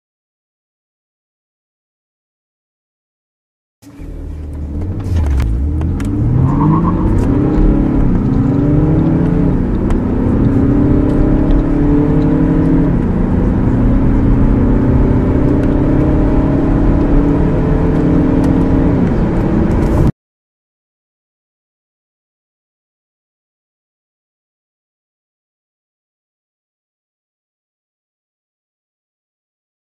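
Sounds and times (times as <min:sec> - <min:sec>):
car engine accelerating: 0:03.8 - 0:20.1.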